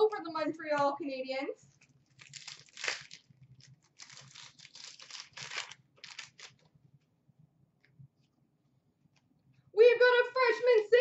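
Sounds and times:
wrapper crinkling and tearing: 1.8s - 6.7s.

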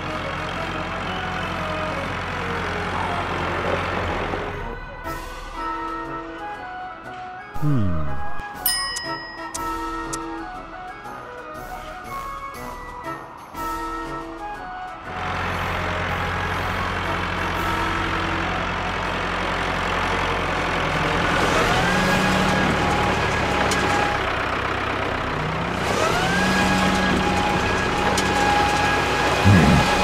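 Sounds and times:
cartoon tractor engine revving: 7.6s - 8.4s, 15.5s - 30.0s.

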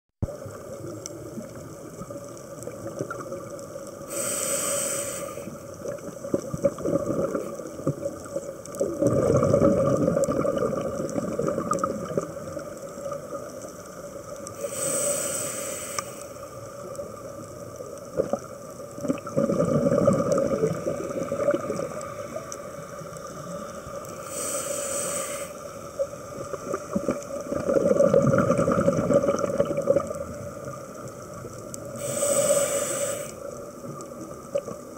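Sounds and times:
exhaled bubbles burbling: 0.2s - 3.6s, 5.7s - 13.6s, 18.1s - 22.5s, 26.0s - 32.1s
regulator inhalation hiss: 4.0s - 5.7s, 14.5s - 16.7s, 24.0s - 26.0s, 31.9s - 33.6s.

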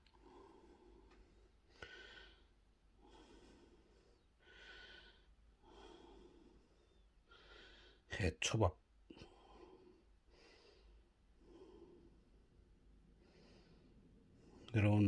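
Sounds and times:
person breathing softly: 0.0s - 8.1s, 9.0s - 14.8s.

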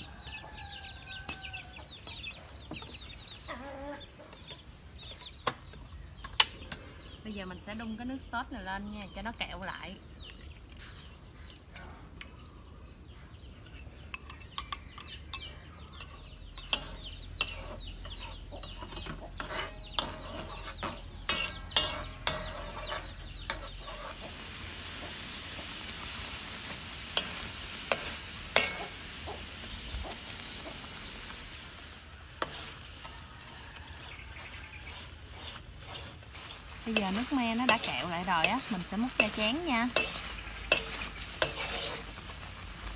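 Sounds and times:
metal spoon scraping a pan: 13.6s - 25.2s, 26.2s - 29.4s, 32.3s - 42.9s
sauce sizzling in a pan: 19.4s - 42.9s.

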